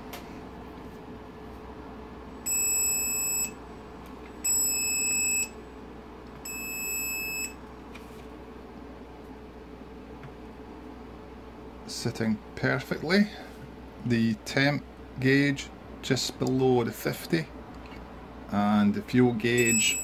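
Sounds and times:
warning buzzer beeps: 0:02.5 - 0:03.6, 0:04.4 - 0:05.6, 0:06.5 - 0:07.6, 0:19.6 - 0:20.0.

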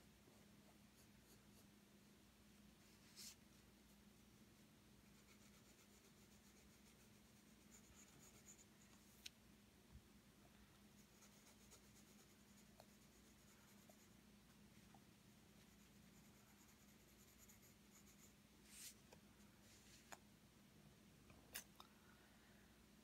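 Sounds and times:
pencil scratching on paper: 0:00.3 - 0:01.7, 0:05.1 - 0:08.7, 0:11.0 - 0:14.1, 0:15.6 - 0:18.9.

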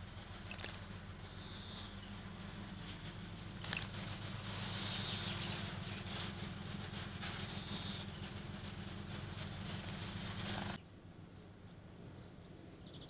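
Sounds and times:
low steady hum: 0:00.0 - 0:13.0
bird splashing in water: 0:00.4 - 0:00.8, 0:03.6 - 0:04.0.

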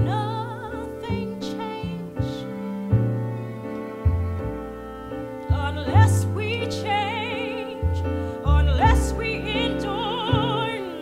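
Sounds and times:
instrumental accompaniment: 0:00.0 - 0:11.0
woman singing with vibrato: 0:05.5 - 0:11.0.

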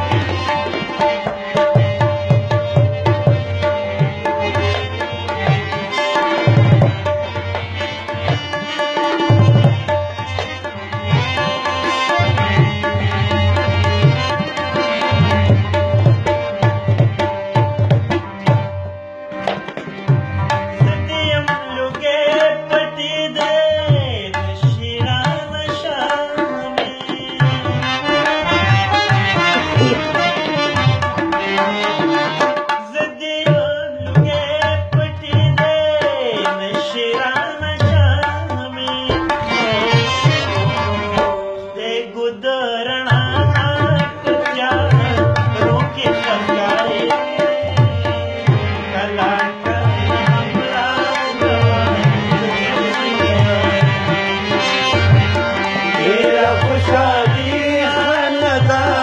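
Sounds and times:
man singing: 0:00.0 - 0:18.6, 0:20.4 - 0:59.0
held melodic accompaniment: 0:00.0 - 0:33.0
tabla rhythm: 0:00.0 - 0:59.0.

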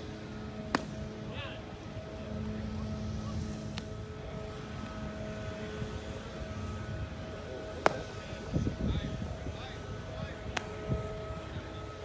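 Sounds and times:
steady low drone: 0:00.0 - 0:12.0
baseball popping into catcher's mitt: 0:00.7 - 0:01.0, 0:07.8 - 0:08.0.

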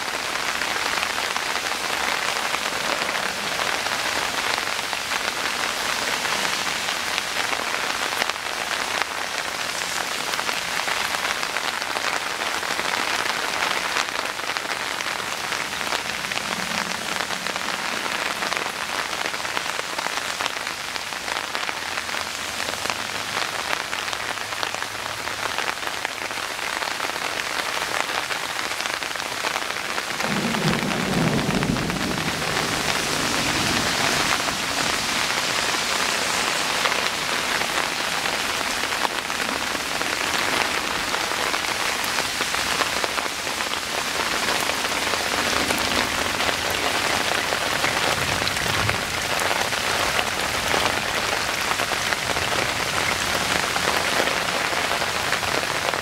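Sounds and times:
heavy rain falling: 0:00.0 - 0:56.0
low rumble of thunder: 0:30.1 - 0:35.9.

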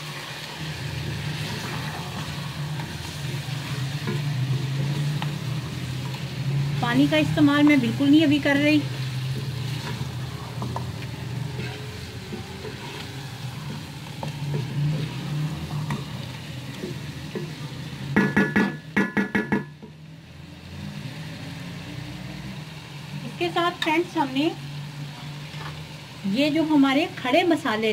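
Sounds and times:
wooden spatula scraping: 0:00.0 - 0:17.5
chicken sizzling in a pot: 0:00.0 - 0:27.9.

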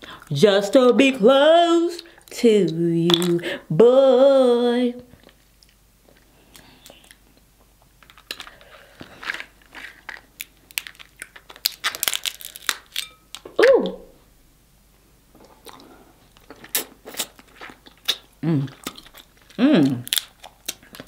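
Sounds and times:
wet eating sounds: 0:03.1 - 0:03.6, 0:15.4 - 0:21.0
crab shells cracking: 0:09.2 - 0:13.5, 0:16.4 - 0:21.0
person humming: 0:18.4 - 0:18.8, 0:19.6 - 0:20.1.

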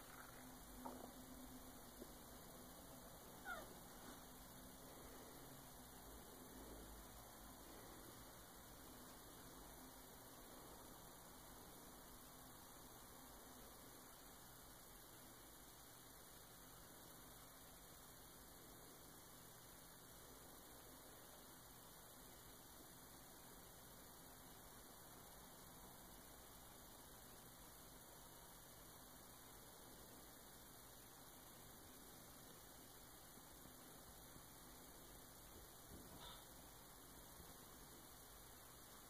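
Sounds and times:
faint room tone hum and hiss: 0:00.0 - 0:39.0.

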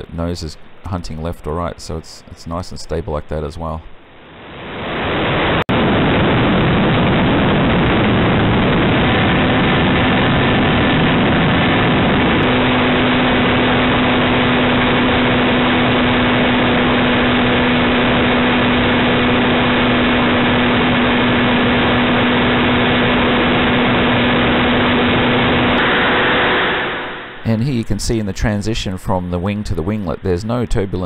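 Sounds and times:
steady hum: 0:00.0 - 0:31.0
wind rushing: 0:04.1 - 0:28.0.

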